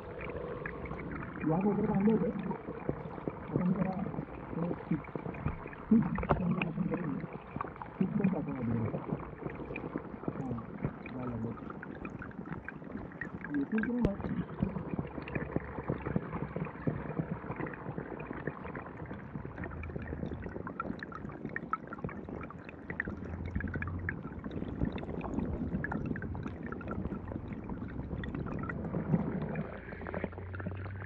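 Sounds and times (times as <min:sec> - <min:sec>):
water gurgling over rock: 0:00.0 - 0:31.0
small clicks and ticks: 0:08.9 - 0:31.0.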